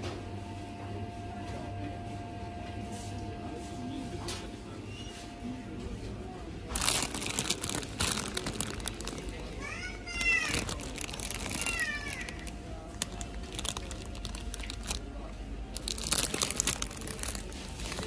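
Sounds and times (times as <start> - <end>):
plastic bags crinkling: 6.7 - 18.0.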